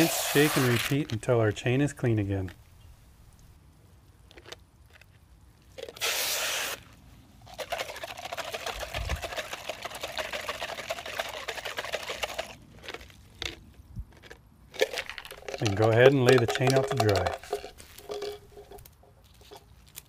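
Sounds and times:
water rushing from hose: 0.0 - 1.0, 6.0 - 6.8
chain rattling in water: 14.8 - 19.6.

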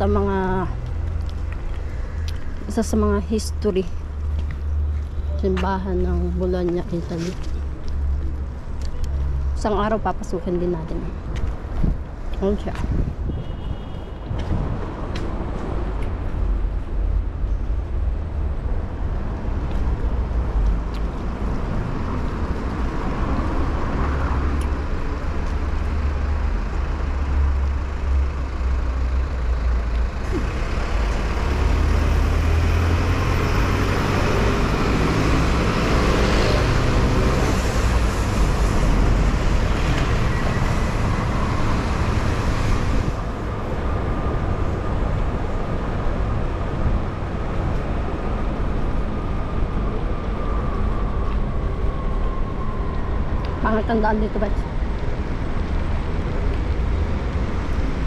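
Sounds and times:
diesel bus rumbling: 0.0 - 13.4, 14.0 - 58.0
street traffic: 0.0 - 58.0.

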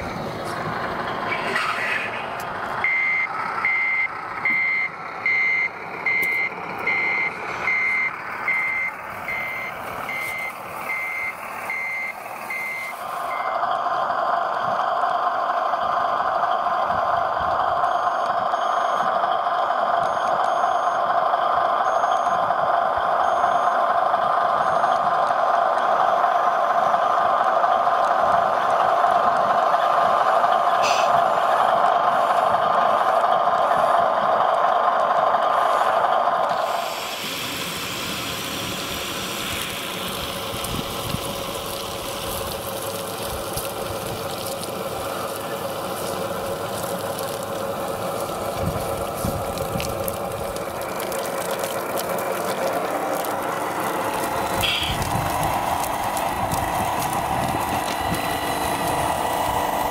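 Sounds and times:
small electric water pump running: 36.5 - 59.9
water jetting from nozzle: 36.5 - 59.9.

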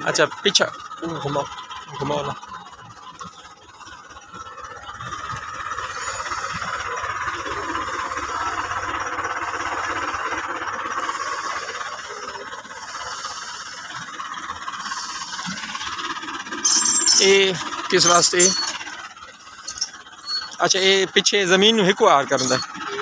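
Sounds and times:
seed drill rattling through soil: 14.6 - 18.9, 19.6 - 21.1, 22.0 - 22.9.

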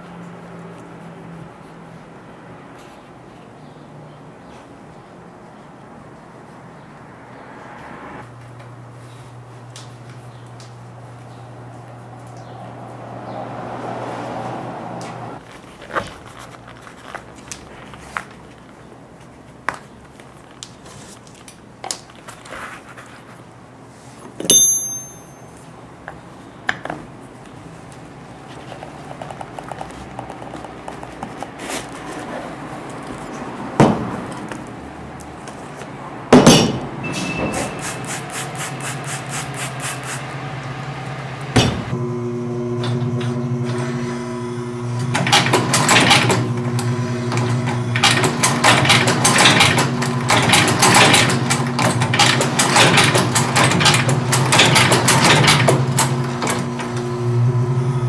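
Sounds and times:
ringing metal clink: 24.5 - 25.6
stitching machine motor humming: 37.8 - 58.0.

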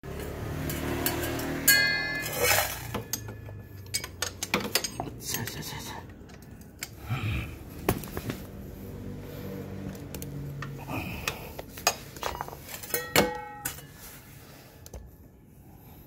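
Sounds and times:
ringing metal clang: 0.7 - 5.0, 12.8 - 13.9.

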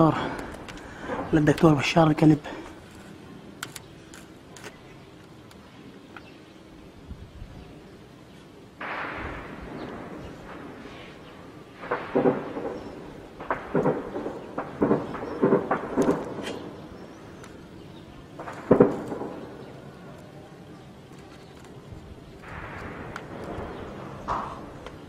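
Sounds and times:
gunshots: 8.8 - 11.1, 11.7 - 16.8, 18.4 - 19.6
distant explosion booming: 8.8 - 17.4, 18.0 - 20.1, 22.3 - 25.0.

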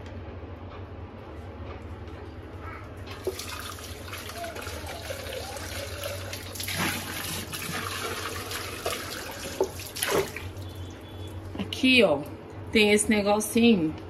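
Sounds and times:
tap water running into sink: 3.1 - 10.6
water splashing on plastic: 3.1 - 10.8.

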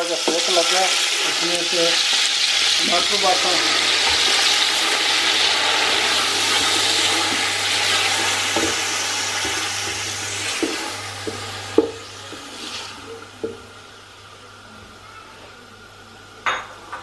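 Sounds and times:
tomatoes sizzling in hot oil: 0.0 - 14.0.

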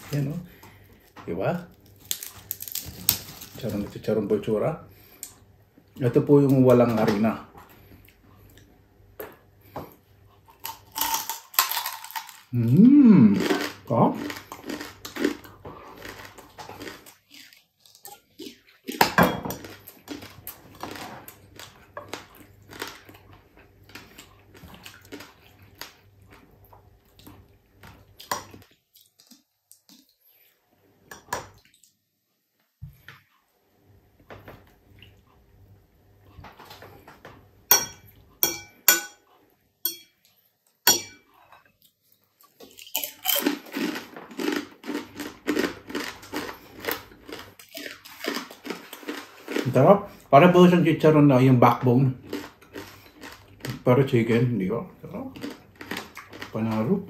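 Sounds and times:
crunchy chewing: 10.4 - 19.0, 19.6 - 30.4, 41.4 - 50.3, 52.2 - 53.9, 55.1 - 57.0
cutlery clinking on dishes: 37.7 - 39.2, 39.9 - 40.2, 40.9 - 41.3.

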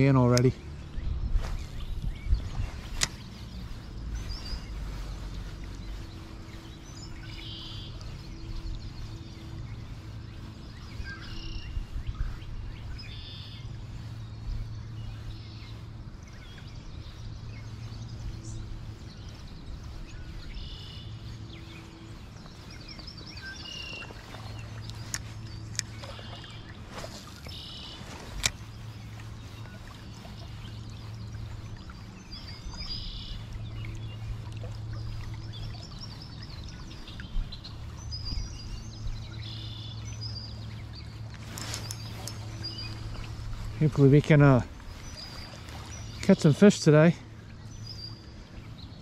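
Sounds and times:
low hum: 0.0 - 49.0
songbirds chirping: 0.0 - 49.0.

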